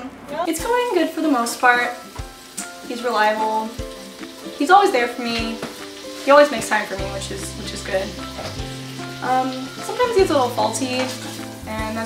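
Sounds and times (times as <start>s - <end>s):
food sizzling in a pan: 0.4s - 12.0s
background music with bass line: 7.0s - 12.0s.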